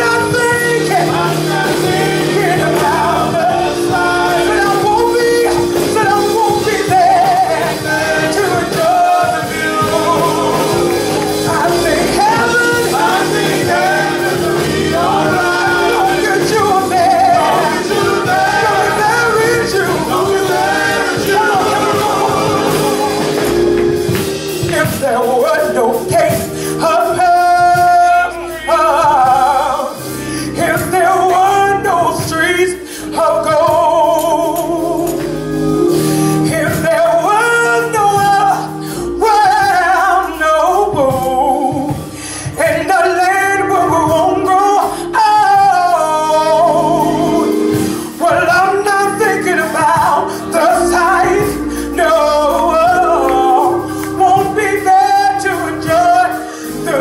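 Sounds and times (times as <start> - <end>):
man's lead vocal: 0.0 - 35.4, 36.3 - 57.0
gospel group singing: 0.0 - 57.0
steady held accompaniment: 0.0 - 57.0.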